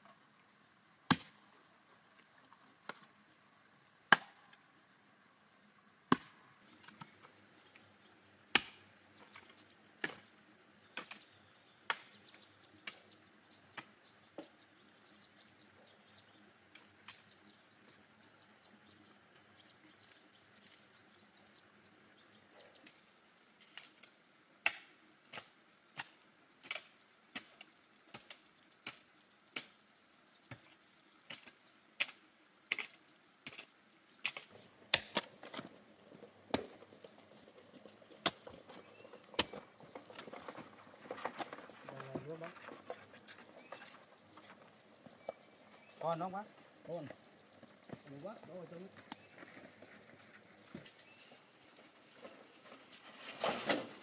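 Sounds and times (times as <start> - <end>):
hoe chopping into soil: 1.1 - 1.4, 8.5 - 11.3, 30.5 - 35.7, 36.5 - 36.8, 38.2 - 40.6.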